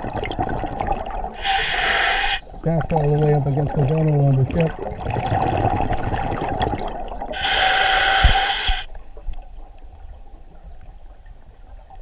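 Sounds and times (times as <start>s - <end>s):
exhaled air bubbling underwater: 0.0s - 12.0s
regulator hissing inhale: 1.4s - 2.4s, 7.4s - 8.9s.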